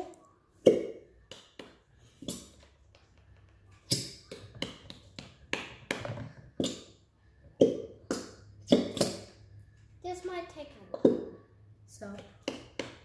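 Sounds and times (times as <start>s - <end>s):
glue bottle squirting: 2.1s - 2.8s, 3.8s - 4.7s, 7.6s - 9.4s.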